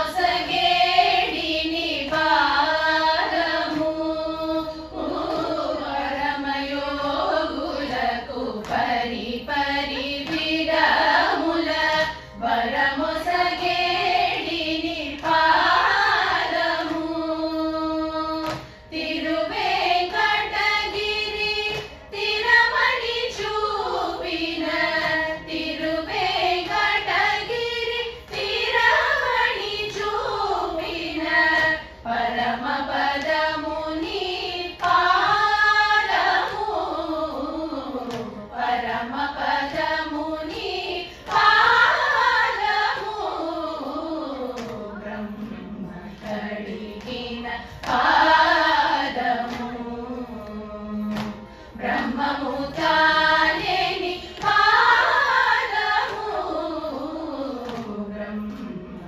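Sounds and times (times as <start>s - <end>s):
women singing in chorus: 0.0s - 59.0s
singers breathing: 51.4s - 51.8s.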